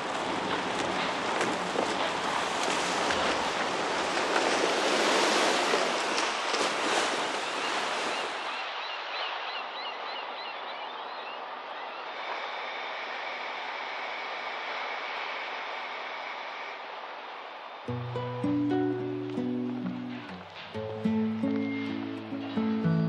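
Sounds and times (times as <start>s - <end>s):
rushing splashing water: 0.0s - 9.6s.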